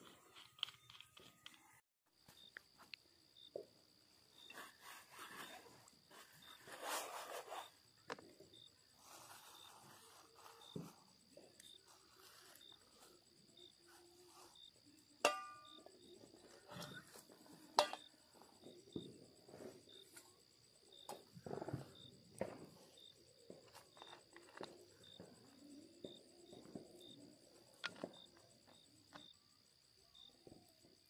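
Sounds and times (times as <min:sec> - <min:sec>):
night insects chirping: 0:00.0 - 0:31.0
camping gear clattering: 0:15.2 - 0:18.6
metal clink ringing: 0:15.3 - 0:15.8.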